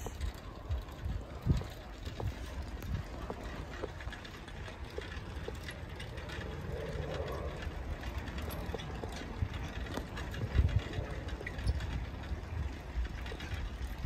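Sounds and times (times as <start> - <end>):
bicycle rolling on asphalt: 0.0 - 14.0
bike clicking and rattling: 0.0 - 14.0.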